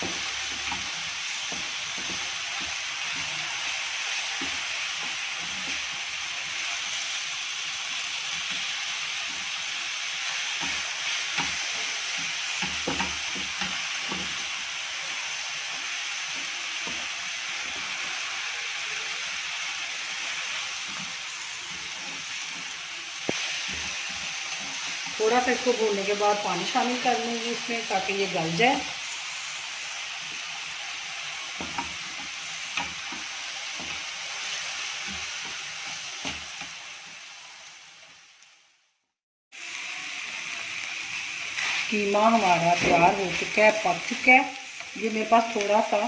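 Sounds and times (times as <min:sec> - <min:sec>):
meat sizzling in a frying pan: 0:00.0 - 0:46.0
spatula scraping a pan: 0:41.2 - 0:43.6.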